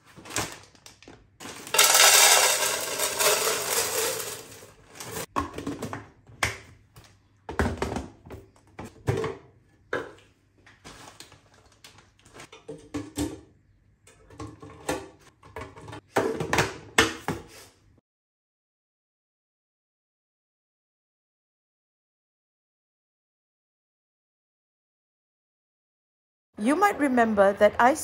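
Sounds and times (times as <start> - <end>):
plastic bag crinkling: 0.0 - 5.3.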